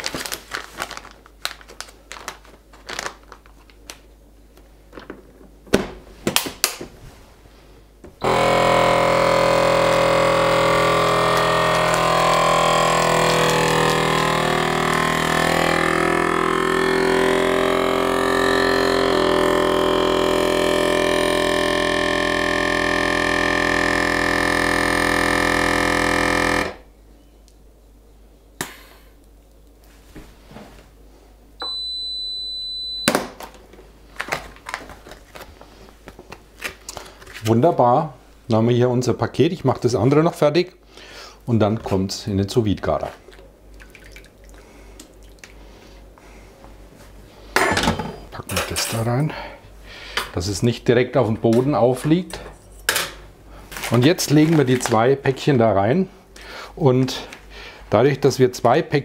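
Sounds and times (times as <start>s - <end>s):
plastic bag handling: 0.0s - 4.1s, 33.4s - 37.6s, 53.6s - 55.2s
vacuum pump humming: 8.0s - 26.9s, 31.6s - 33.2s.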